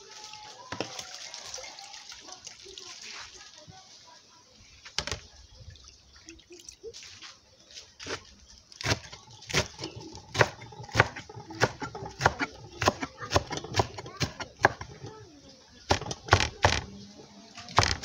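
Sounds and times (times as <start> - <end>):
knife chopping on wooden board: 8.8 - 15.1, 15.9 - 16.9.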